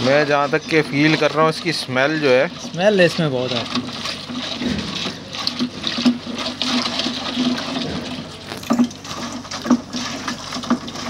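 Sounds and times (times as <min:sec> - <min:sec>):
liquid sloshing while stirred: 0:00.0 - 0:11.0
sharp knocks: 0:04.6 - 0:05.1.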